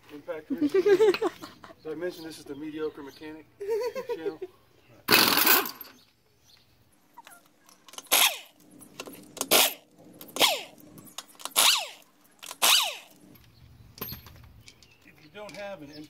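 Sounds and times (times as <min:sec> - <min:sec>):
impact wrench bursts: 0:05.1 - 0:05.9, 0:07.8 - 0:13.4.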